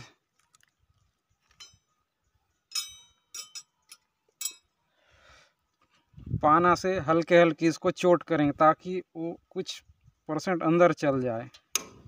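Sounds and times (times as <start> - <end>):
metallic clinks of tools: 2.7 - 4.7.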